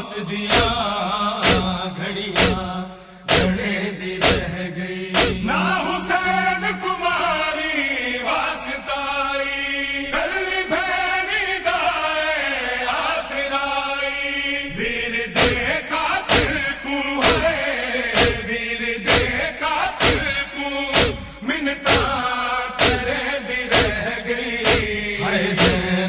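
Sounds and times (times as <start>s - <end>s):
men chanting a lament: 0.0s - 26.0s
chest-beating thumps: 0.5s - 5.6s, 15.4s - 22.2s, 22.8s - 26.0s.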